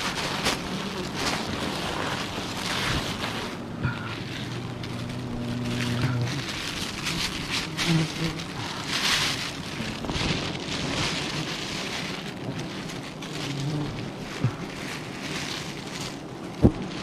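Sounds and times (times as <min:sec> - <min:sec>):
plastic bag rustling: 0:00.0 - 0:17.0
bees buzzing past: 0:00.4 - 0:12.6.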